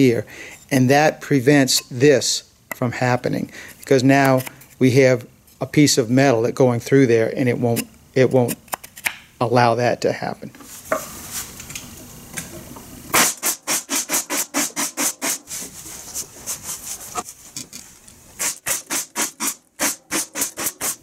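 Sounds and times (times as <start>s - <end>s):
pneumatic staple gun shots: 13.1s - 15.2s, 18.4s - 21.0s.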